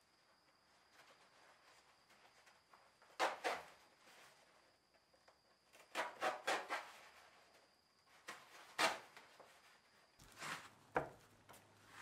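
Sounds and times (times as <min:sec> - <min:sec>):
rustling scrapes of insulation slabs: 0:05.7 - 0:12.0.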